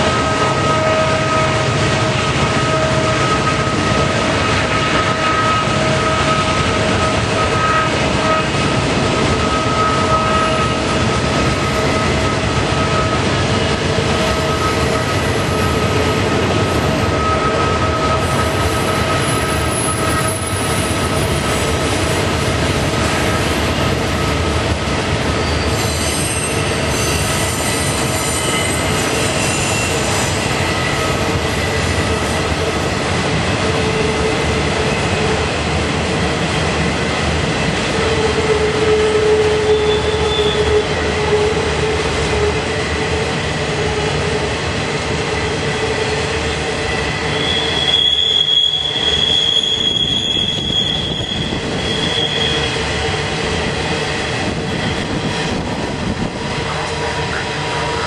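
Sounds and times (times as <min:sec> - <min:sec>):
train wheels rumbling on rail: 0:00.0 - 0:58.0
wheel flanges squealing: 0:09.2 - 0:22.3, 0:25.3 - 0:32.7, 0:38.0 - 0:44.2, 0:45.4 - 0:55.9.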